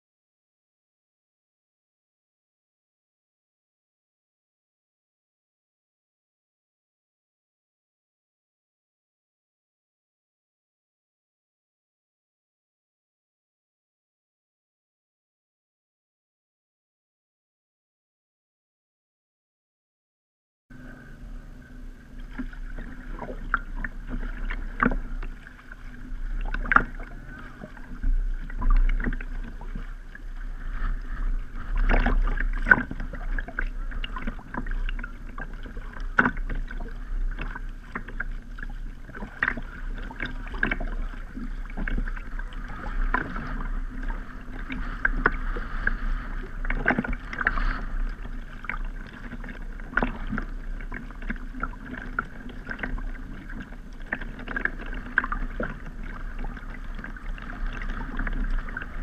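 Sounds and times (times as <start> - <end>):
steady low rumble: 20.7 - 59.0
paddle splashing water: 20.8 - 59.0.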